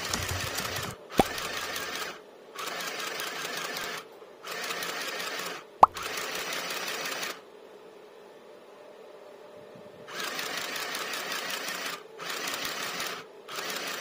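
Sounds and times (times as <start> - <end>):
sewing machine stitching: 0.0 - 5.1, 10.1 - 14.0.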